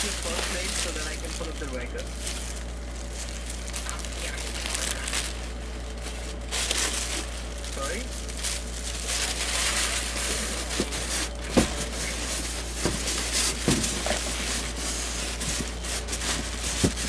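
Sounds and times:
steady low hum: 0:00.0 - 0:17.0
cardboard box rustling and scraping: 0:08.4 - 0:17.0.

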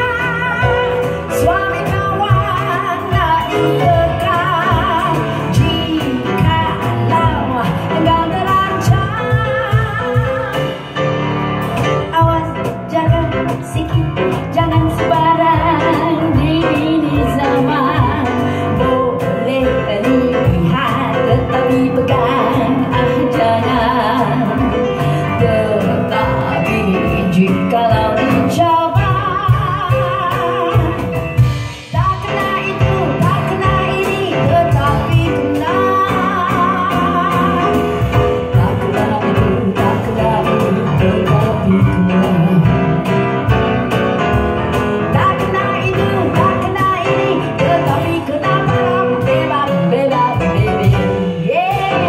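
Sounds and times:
woman singing with vibrato: 0:00.0 - 0:43.5, 0:45.0 - 0:52.0
grand piano: 0:00.0 - 0:52.0
percussion: 0:00.0 - 0:52.0.

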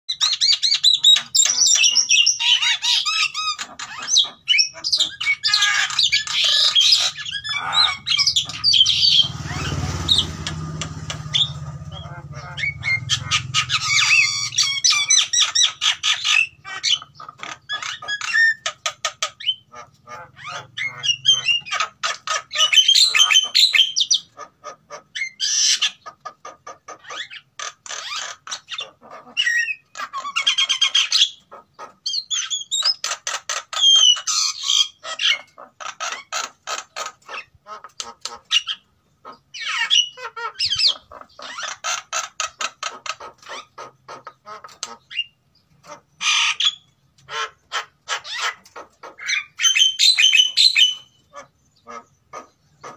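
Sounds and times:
birds squawking and chattering: 0:00.1 - 0:52.9.

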